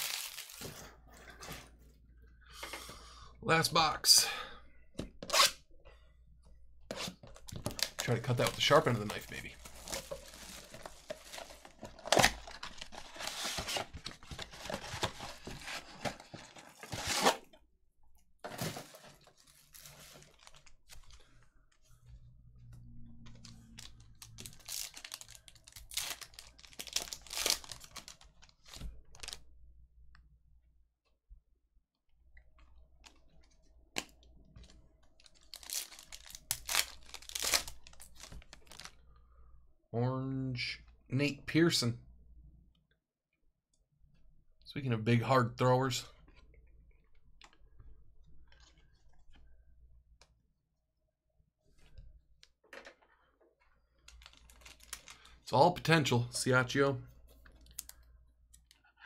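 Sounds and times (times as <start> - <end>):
foil wrapper ripping: 0.0 - 0.7, 35.5 - 38.9
plastic shrink wrap crinkling: 0.0 - 0.9, 7.4 - 17.2, 18.6 - 21.3, 23.4 - 29.4, 35.1 - 39.0, 54.0 - 55.5.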